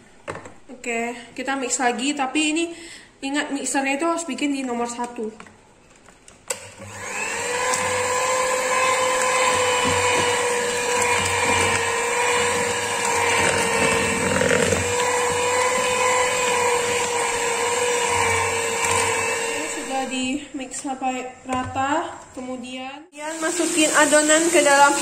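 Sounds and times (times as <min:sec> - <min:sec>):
electric hand mixer whining: 0:06.7 - 0:20.4, 0:23.2 - 0:25.0.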